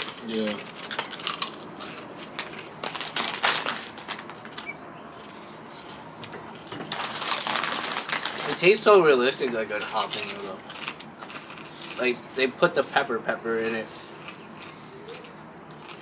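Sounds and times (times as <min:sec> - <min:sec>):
chewing potato chips: 0:00.0 - 0:04.5, 0:06.6 - 0:08.8, 0:09.5 - 0:12.2, 0:13.9 - 0:16.0
foil bag crinkling: 0:00.0 - 0:04.6, 0:06.8 - 0:12.0.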